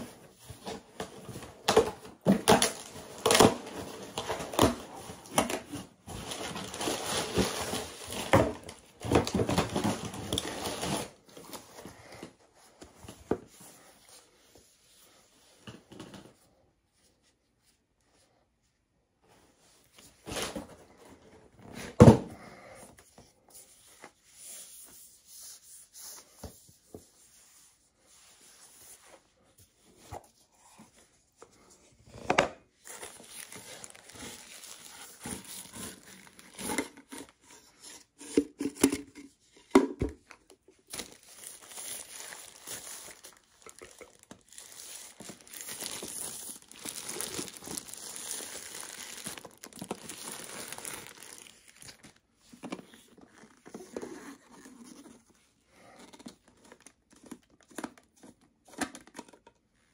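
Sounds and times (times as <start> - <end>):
packaging rustling and crinkling: 0.0 - 12.0, 32.8 - 38.4, 40.2 - 59.5.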